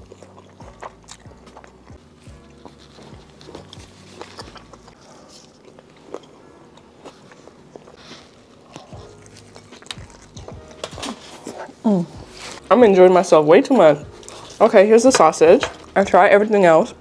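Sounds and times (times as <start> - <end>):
crunchy chewing: 0.0 - 12.6.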